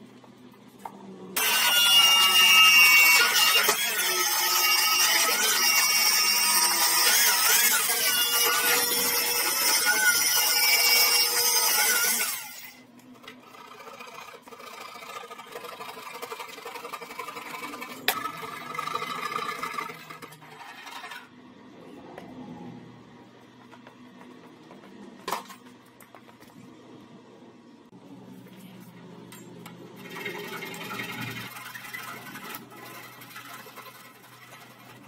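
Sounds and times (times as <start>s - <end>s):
track saw cutting wood: 1.4s - 21.4s, 29.6s - 35.0s.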